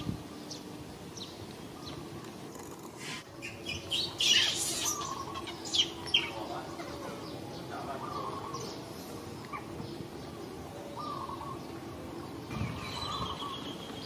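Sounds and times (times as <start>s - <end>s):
animal chirps: 3.0s - 6.4s.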